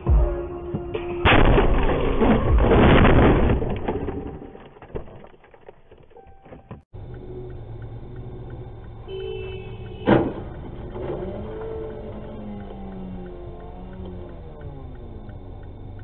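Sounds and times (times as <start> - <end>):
car crash bang: 1.0 - 6.1, 10.0 - 11.2
traffic hum: 4.8 - 16.0.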